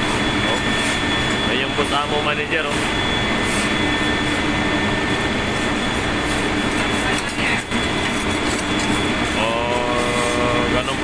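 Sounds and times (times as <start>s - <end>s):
engine-room machinery drone: 0.0s - 11.0s.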